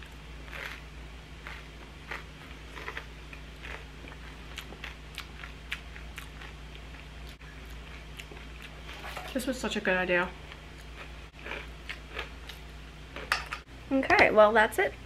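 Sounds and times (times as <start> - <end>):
person chewing crackers crunchily: 0.0 - 9.0, 10.5 - 13.3.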